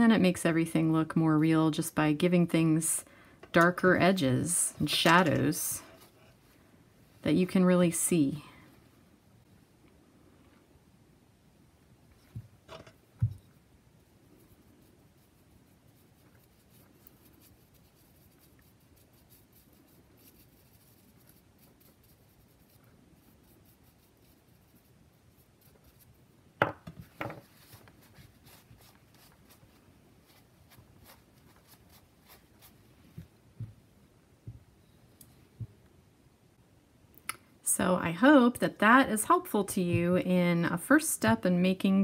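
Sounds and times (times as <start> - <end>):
brush scratching and rubbing: 14.0 - 26.3, 27.1 - 33.4.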